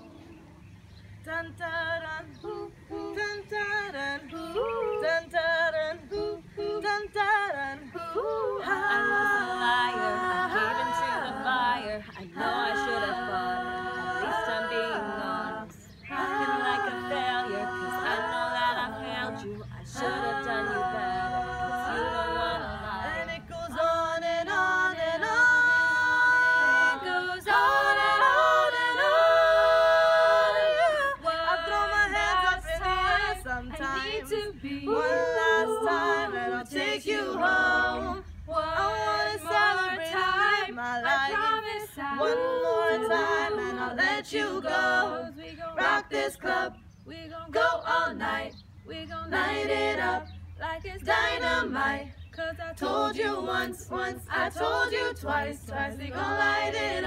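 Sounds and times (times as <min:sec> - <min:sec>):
girls singing a cappella: 0:00.0 - 0:57.0.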